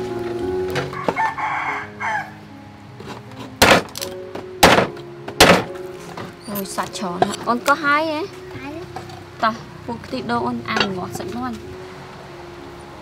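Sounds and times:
cleaver chopping on wooden board: 3.6 - 4.0, 4.6 - 5.7.

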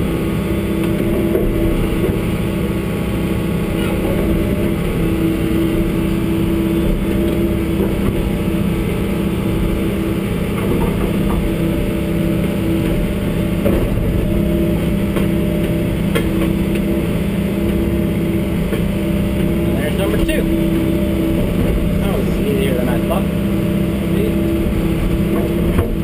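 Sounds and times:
excavator diesel engine running: 0.0 - 26.0.

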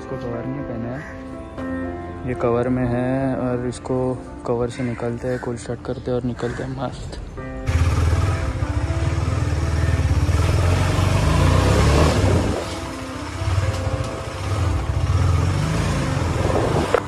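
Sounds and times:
motorcycle engine revving: 7.6 - 17.0.

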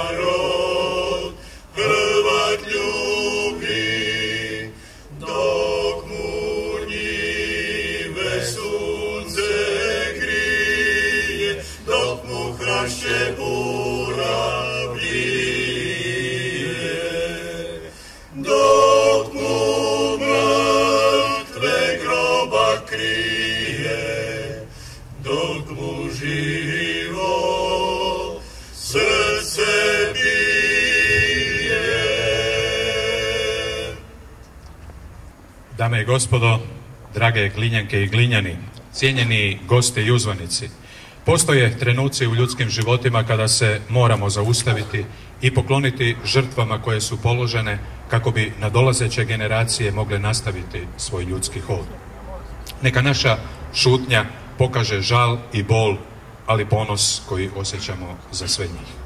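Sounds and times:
choir singing a cappella: 0.0 - 34.3.

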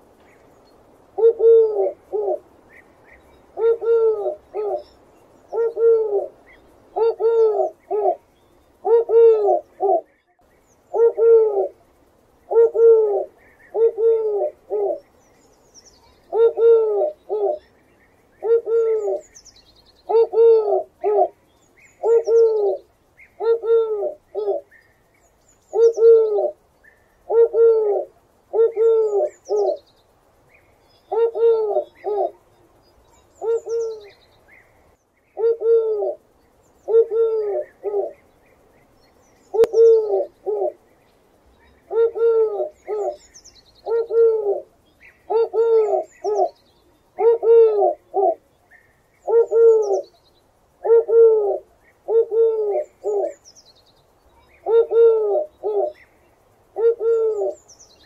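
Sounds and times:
small birds chirping: 0.0 - 58.0
dove cooing: 1.2 - 11.9, 12.5 - 15.2, 16.0 - 17.8, 18.4 - 19.4, 20.0 - 24.7, 25.7 - 29.8, 31.1 - 32.5, 33.4 - 34.2, 35.4 - 38.2, 39.5 - 40.8, 41.6 - 50.2, 50.8 - 53.4, 54.4 - 56.1, 56.7 - 57.7.

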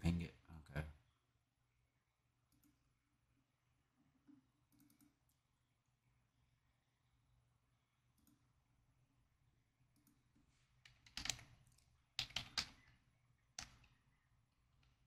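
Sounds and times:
keyboard typing: 4.7 - 5.4, 10.9 - 13.0, 13.6 - 14.2.

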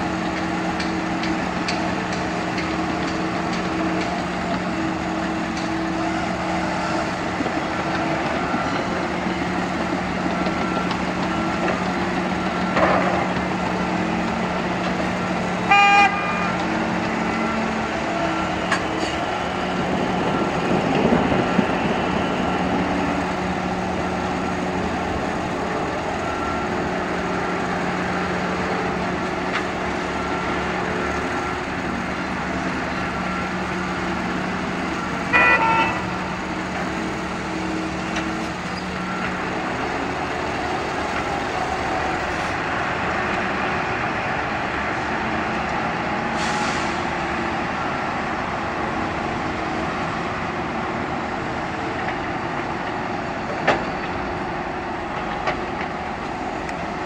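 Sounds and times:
diesel engines running: 0.0 - 57.0
short horn toot: 15.7 - 16.6, 35.3 - 36.1.

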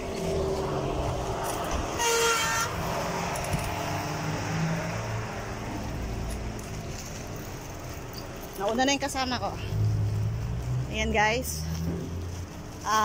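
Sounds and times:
horn toot: 1.9 - 2.9.

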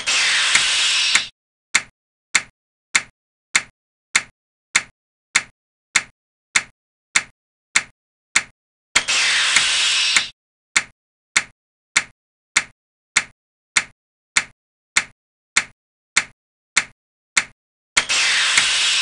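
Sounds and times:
burst of hiss: 0.0 - 1.3, 9.1 - 10.3, 18.1 - 19.0
sharp clicks: 0.1 - 19.0.

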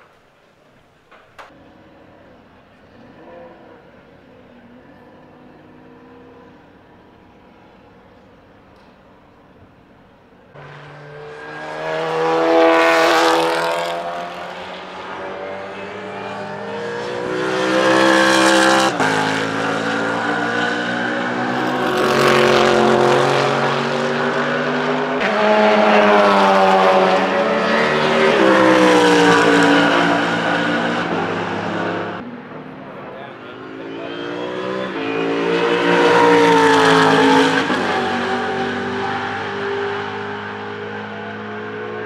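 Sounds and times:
racing engine accelerating: 10.6 - 42.0.

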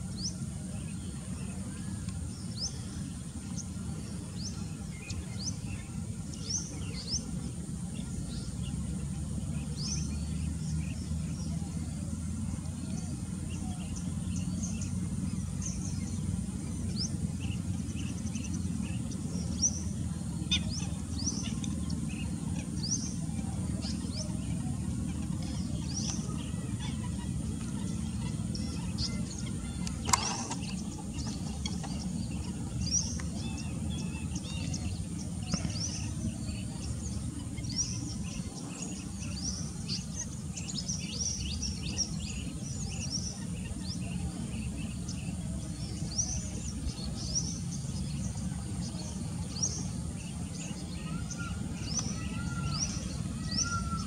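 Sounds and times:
small birds chirping: 0.0 - 54.0
lower bird calls: 50.4 - 54.0.

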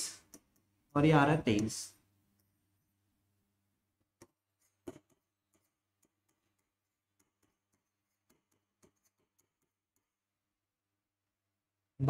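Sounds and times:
marker pen tapping on board: 4.1 - 10.1.

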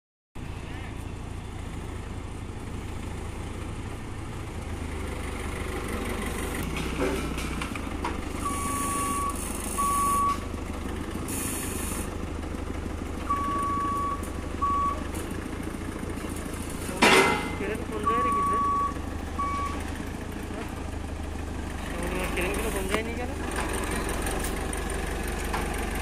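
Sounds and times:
diesel engine running: 0.4 - 26.0
reversing alarm beeps: 8.4 - 10.4, 13.3 - 15.0, 18.0 - 19.8.

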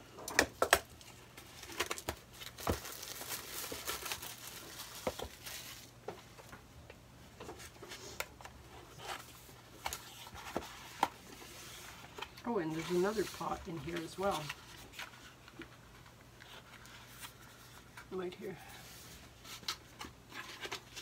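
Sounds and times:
packaging rustling and crinkling: 0.6 - 6.2, 18.8 - 21.0.

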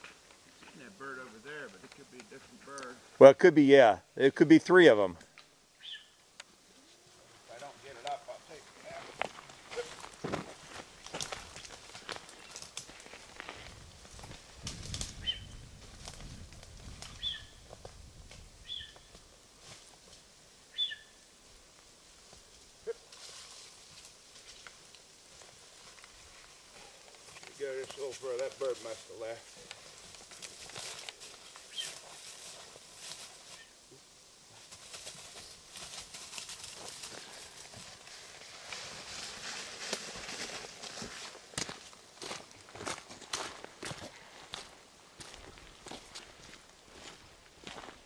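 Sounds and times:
footsteps crunching leaves and snow: 7.4 - 20.2, 22.3 - 33.8, 34.5 - 48.0.

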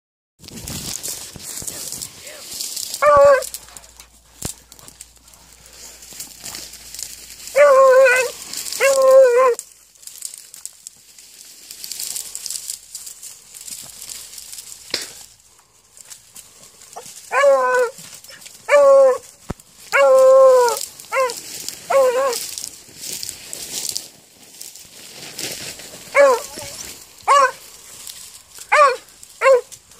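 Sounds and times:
dry brush rustling: 0.4 - 29.9
hound baying: 2.9 - 4.1, 7.4 - 9.6, 16.9 - 22.5, 26.1 - 27.7, 28.6 - 29.8.

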